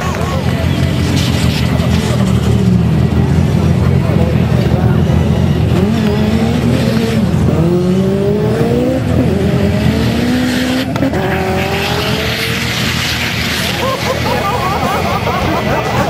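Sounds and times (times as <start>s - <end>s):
racing engine accelerating hard: 0.0s - 16.0s.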